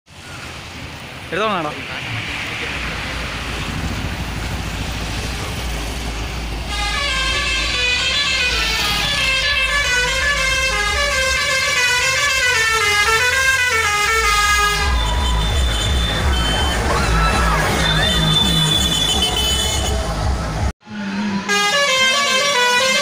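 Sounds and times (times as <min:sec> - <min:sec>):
engine and road rumble: 0:00.1 - 0:23.0
musical air horn melody: 0:06.7 - 0:16.9, 0:17.6 - 0:20.2, 0:20.9 - 0:23.0.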